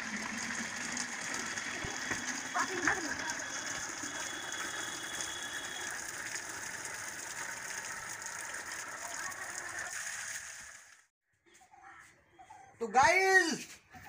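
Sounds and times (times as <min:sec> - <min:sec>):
water splashing into plastic bucket: 0:00.0 - 0:11.0.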